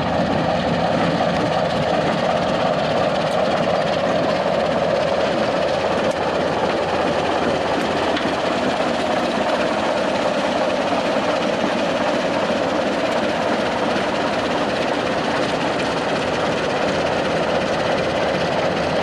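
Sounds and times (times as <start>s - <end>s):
diesel locomotive rumbling past: 0.0s - 19.0s.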